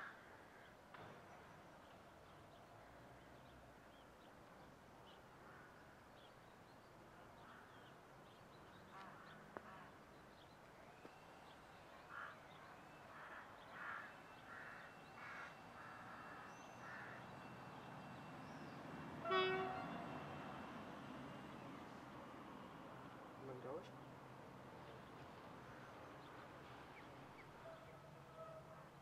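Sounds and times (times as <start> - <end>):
harsh caws: 13.1 - 17.3.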